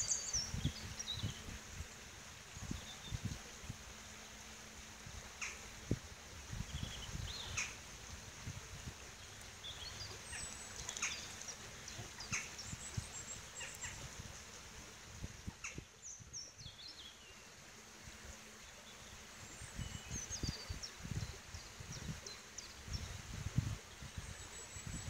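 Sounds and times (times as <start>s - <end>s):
songbirds chirping and whistling: 0.0s - 1.6s.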